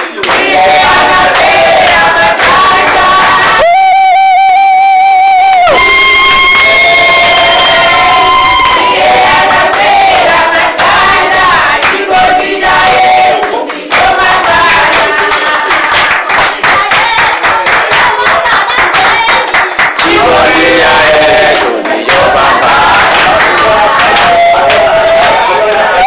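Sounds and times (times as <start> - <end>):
group of people singing: 0.0 - 3.7, 5.9 - 26.0
handclapping: 0.0 - 3.7, 10.6 - 11.0, 11.7 - 12.0, 13.4 - 20.3, 21.5 - 25.4.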